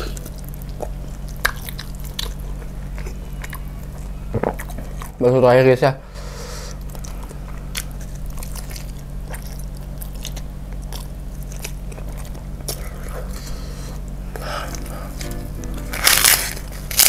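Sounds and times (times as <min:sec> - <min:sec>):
wet chewing mouth clicks: 0:00.0 - 0:05.2
low steady hum: 0:00.0 - 0:17.0.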